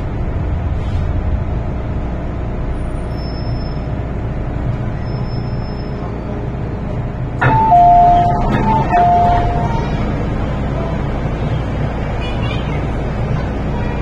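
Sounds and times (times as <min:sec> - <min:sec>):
train carriage rumble: 0:00.0 - 0:14.0
train doors clunking open: 0:07.3 - 0:11.8
two-tone door chime: 0:07.4 - 0:09.8.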